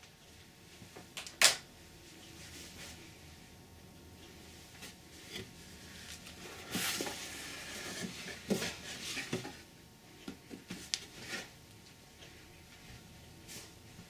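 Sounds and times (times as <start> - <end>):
cardboard rustling: 5.2 - 9.7.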